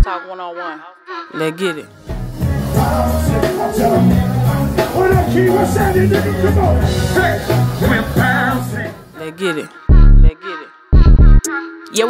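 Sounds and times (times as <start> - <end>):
person singing: 0.0 - 12.0
bass line: 2.1 - 9.0, 9.9 - 10.3, 11.0 - 11.5
electric guitar: 2.1 - 9.0.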